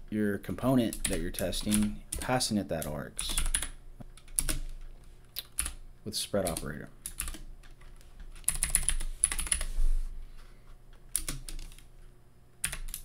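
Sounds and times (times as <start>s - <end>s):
typing on computer keyboard: 0.9s - 4.9s, 6.4s - 9.7s, 11.0s - 11.9s, 12.6s - 13.0s.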